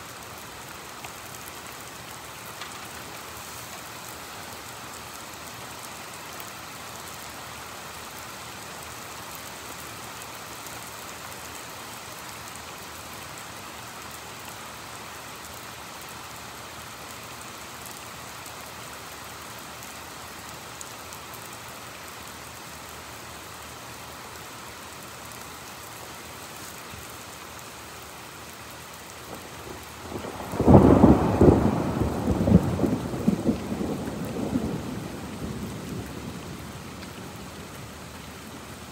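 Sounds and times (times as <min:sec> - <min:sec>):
heavy rain: 0:00.0 - 0:38.9
thunderclap rumbling: 0:30.1 - 0:36.7.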